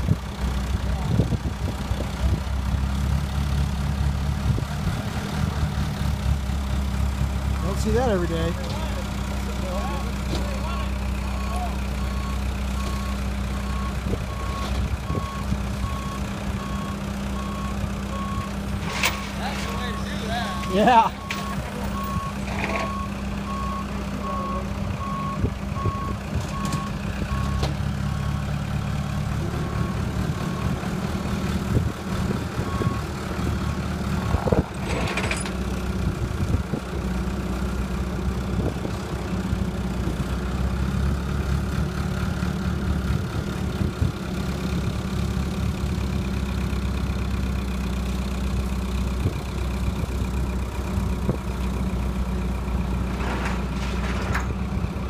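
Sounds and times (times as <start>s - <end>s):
forklift engine running: 0.0s - 55.0s
metal clank: 18.8s - 20.0s, 34.8s - 35.7s, 53.1s - 54.6s.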